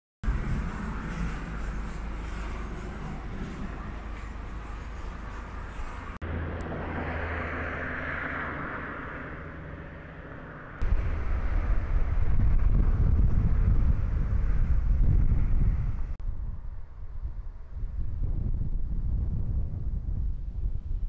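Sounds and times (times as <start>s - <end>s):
wind buffeting microphone: 0.2s - 6.2s, 10.8s - 21.0s
vehicle passing: 0.3s - 16.1s.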